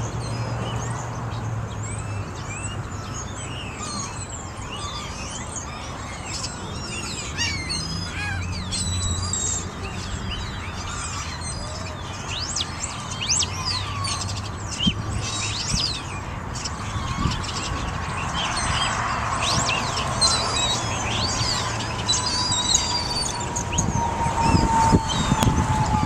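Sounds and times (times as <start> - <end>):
birds chirping: 0.0 - 26.0
distant siren: 18.5 - 26.0.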